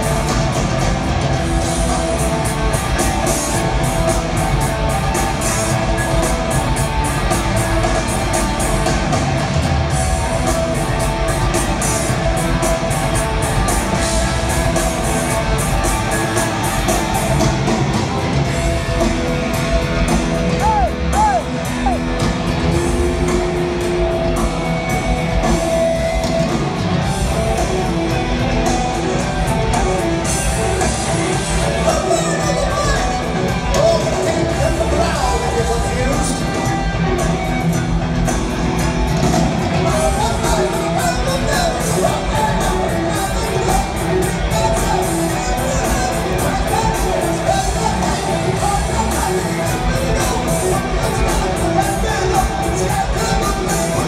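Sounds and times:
distorted electric guitars: 0:00.0 - 0:54.0
drums: 0:00.0 - 0:54.0.

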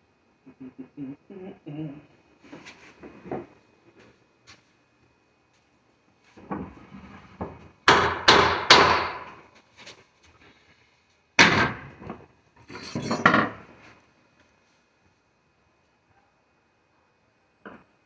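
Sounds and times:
wooden board banging on door: 0:11.4 - 0:11.9.

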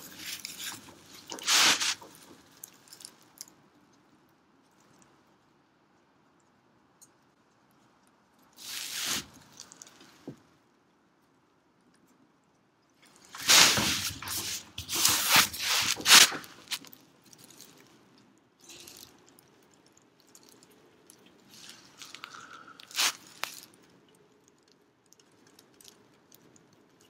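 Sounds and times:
dry grass crunching and crackling: 0:00.0 - 0:03.2, 0:13.3 - 0:17.8, 0:21.5 - 0:23.8.

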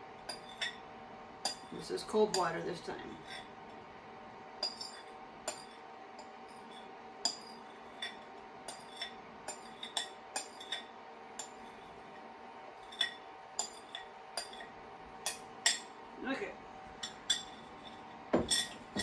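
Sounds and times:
faint steady hum: 0:00.0 - 0:19.0
spoon scraping glass bowl: 0:04.6 - 0:12.0, 0:17.1 - 0:19.0.

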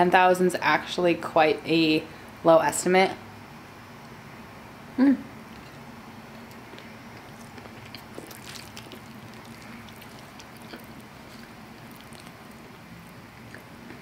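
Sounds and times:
wet chewing sounds: 0:05.5 - 0:14.0.

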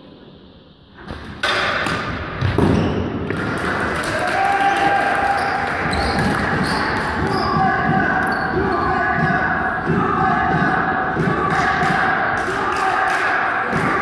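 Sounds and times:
hockey sticks hitting ball: 0:01.0 - 0:14.0
players shouting: 0:03.3 - 0:14.0.

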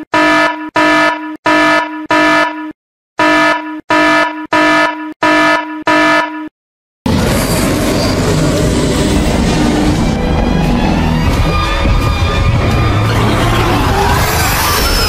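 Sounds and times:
pulsing warning buzzer: 0:00.0 - 0:06.5
music: 0:09.1 - 0:15.0.

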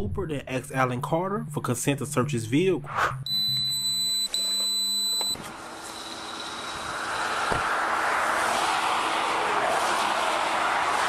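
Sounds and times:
highway traffic road noise: 0:05.4 - 0:11.0.

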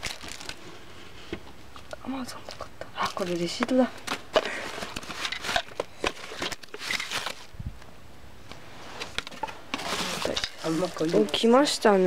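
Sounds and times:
packaging rustling: 0:00.0 - 0:01.2, 0:01.8 - 0:07.5, 0:09.0 - 0:11.5.

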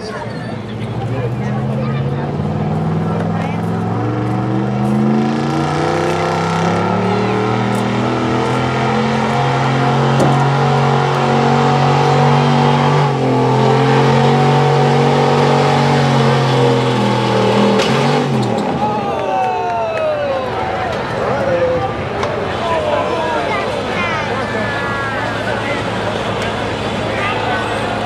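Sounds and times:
pickup engine at high revs: 0:00.7 - 0:18.8.

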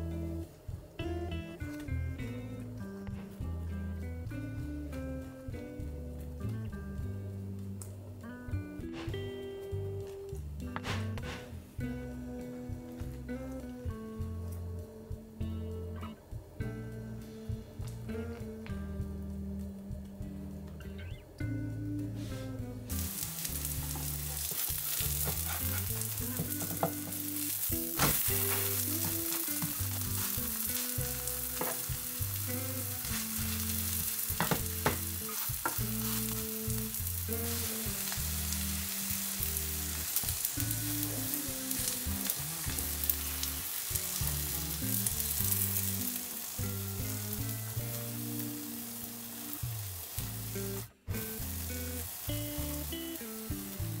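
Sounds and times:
food sizzling in oil: 0:22.1 - 0:54.0.

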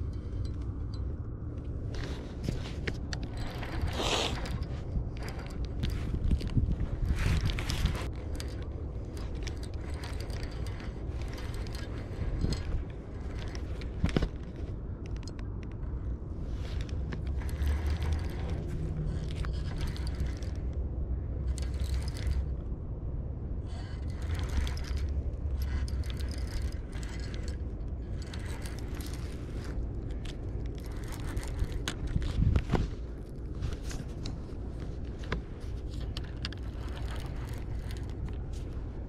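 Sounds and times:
fishing reel cranking: 0:02.0 - 0:14.5, 0:16.6 - 0:20.8, 0:21.4 - 0:22.6, 0:23.6 - 0:32.4, 0:35.8 - 0:38.7.

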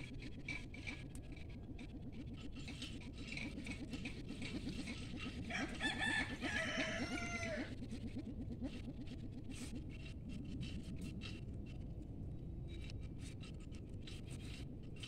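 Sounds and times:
low fast pulsing: 0:00.0 - 0:15.0
rooster crowing: 0:05.4 - 0:07.7.

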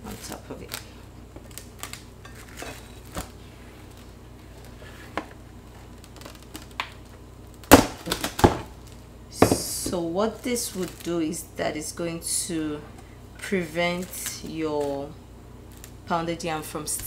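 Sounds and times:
plastic cling wrap crinkling: 0:00.0 - 0:09.0, 0:10.2 - 0:11.5, 0:13.9 - 0:16.1
low steady hum: 0:00.0 - 0:17.0.

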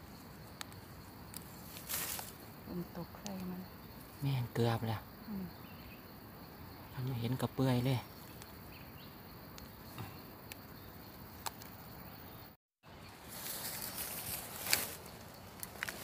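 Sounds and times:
hands rustling through grass: 0:00.0 - 0:02.5, 0:13.1 - 0:16.0
light clicks and snaps: 0:03.2 - 0:03.5.

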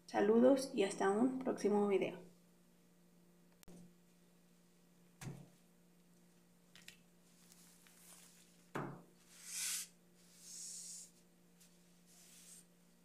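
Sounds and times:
faint steady hum: 0:00.0 - 0:13.0
hand brushing across fabric: 0:09.3 - 0:12.7.

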